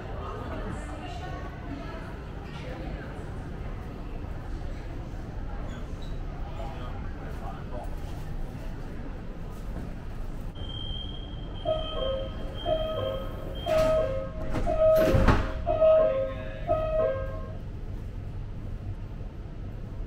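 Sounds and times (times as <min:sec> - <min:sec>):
steady high tone: 0:10.6 - 0:17.6
two-note electronic warning beep: 0:10.6 - 0:17.6
sliding doors shutting with thud: 0:13.6 - 0:15.7.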